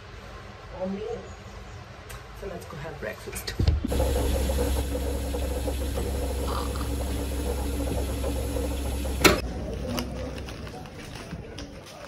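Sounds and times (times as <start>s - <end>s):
coffee machine pump humming: 3.9s - 9.4s
coffee pouring into cup: 3.9s - 9.4s.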